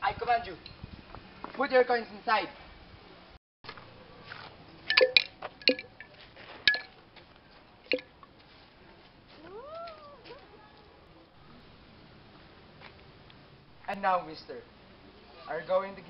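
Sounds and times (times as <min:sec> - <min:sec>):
coins clinking into water: 0:04.9 - 0:06.1, 0:06.7 - 0:06.9
cat meowing: 0:09.4 - 0:10.6.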